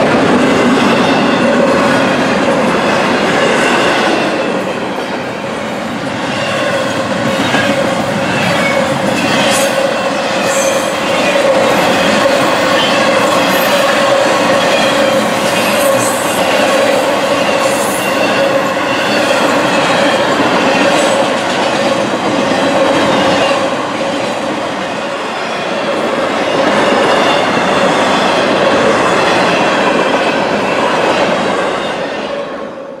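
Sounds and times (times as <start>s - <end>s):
train wheels rushing on rail: 0.0s - 33.0s.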